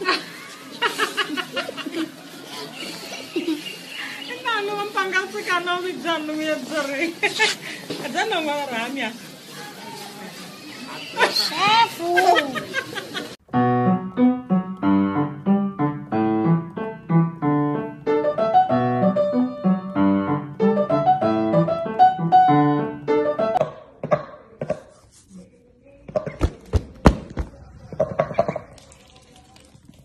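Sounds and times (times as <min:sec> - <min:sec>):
piano music: 0:13.4 - 0:23.7.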